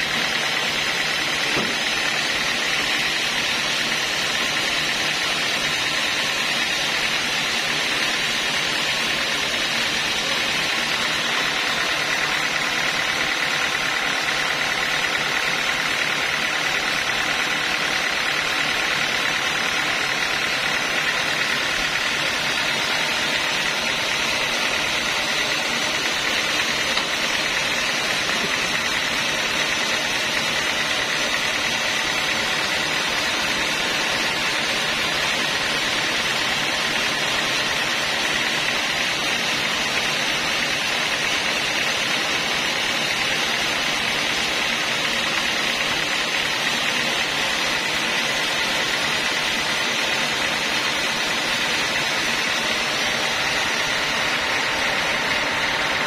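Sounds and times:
band sawmill running: 0.0 - 56.0.

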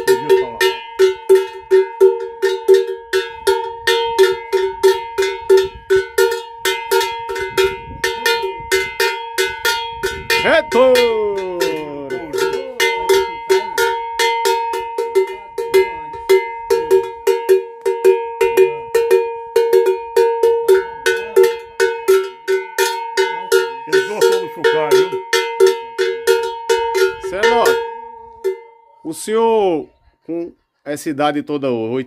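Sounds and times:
metal cattle bell clanking: 0.0 - 29.3.

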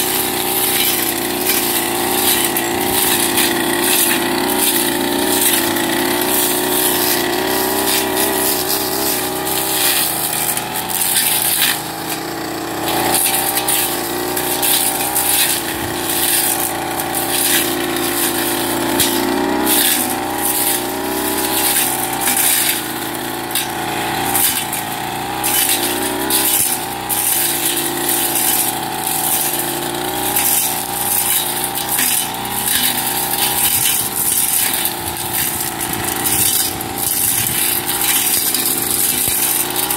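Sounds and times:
blade ticks and crackles: 0.0 - 39.9
brush cutter engine: 0.0 - 39.9.

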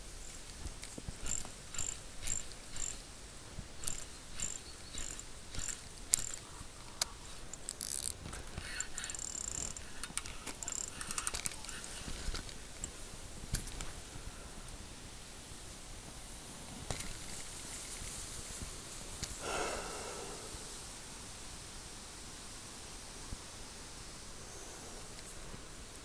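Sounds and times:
rustling and clicks: 0.0 - 14.0
spinning reel gears ticking: 1.2 - 3.1, 3.7 - 6.5, 7.5 - 12.0.

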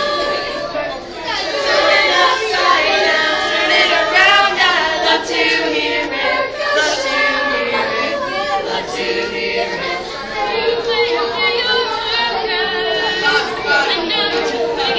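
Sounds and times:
children's choir singing: 0.0 - 14.9.

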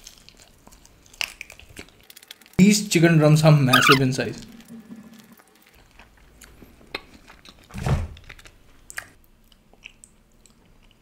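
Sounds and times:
wet mouth clicks and crunches: 0.0 - 2.5, 6.0 - 11.0
close-up chewing: 0.0 - 2.6, 5.6 - 11.0.

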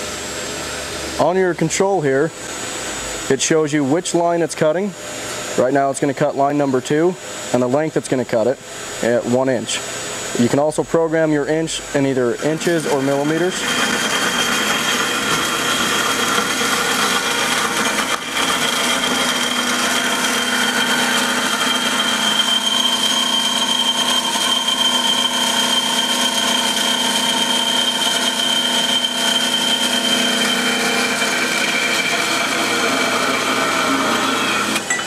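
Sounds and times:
band saw cutting metal: 11.5 - 35.0.

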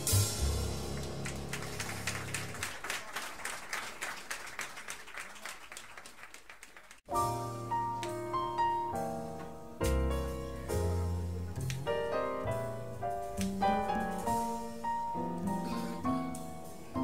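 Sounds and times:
audience applauding: 0.9 - 7.1
piano notes: 7.1 - 17.0.

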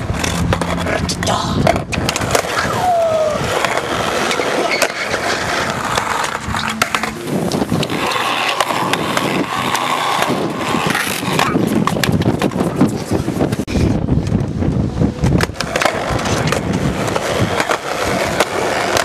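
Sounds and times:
skateboard wheels rolling on concrete: 0.0 - 19.0
skateboard knocks: 3.6 - 12.8.

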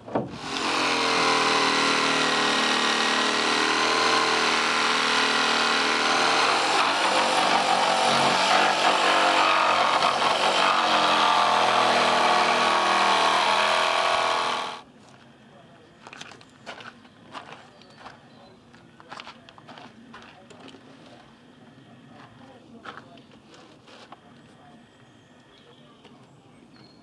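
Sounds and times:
electric jigsaw cutting wood: 0.3 - 14.8.

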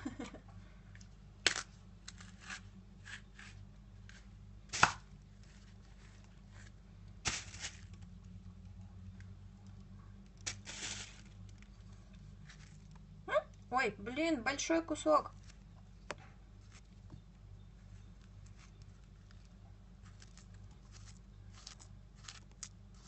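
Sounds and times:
knife cutting banana: 1.4 - 5.1.

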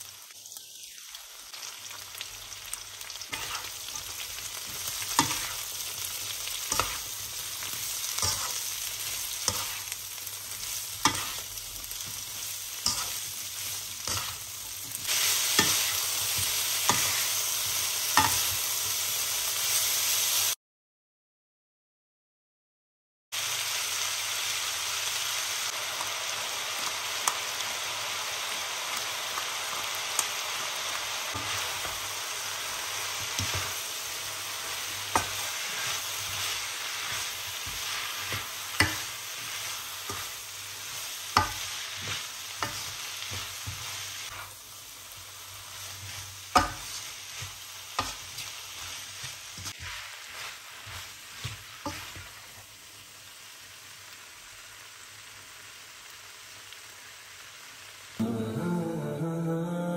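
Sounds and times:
food sizzling in a wok: 0.0 - 20.6, 23.3 - 59.2
spatula scraping a pan: 3.3 - 10.0, 10.6 - 17.3, 34.8 - 44.6, 45.6 - 52.6.

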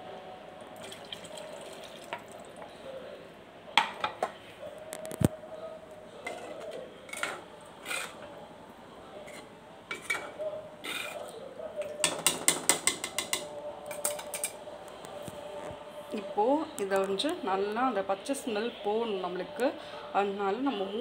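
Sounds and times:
spoon clinking against clay pot: 9.9 - 14.6.

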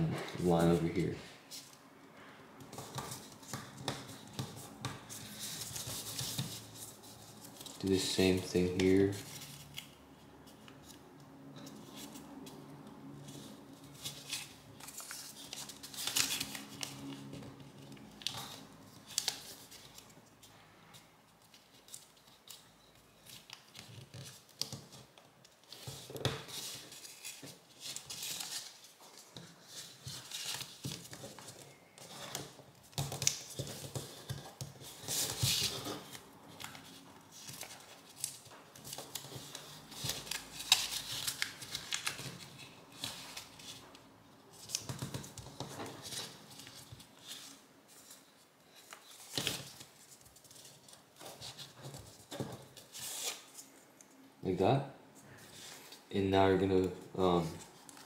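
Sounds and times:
paper rustling and crinkling: 2.7 - 11.0, 13.2 - 54.1, 55.2 - 56.1, 56.7 - 58.0.

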